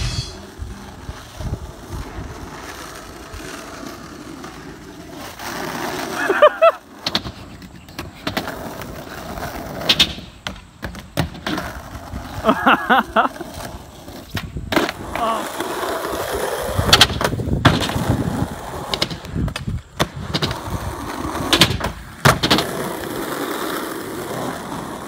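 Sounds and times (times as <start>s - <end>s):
skateboard wheels rumbling on asphalt: 0.0s - 25.0s
skateboard clacking on pavement: 6.8s - 12.4s, 13.4s - 25.0s.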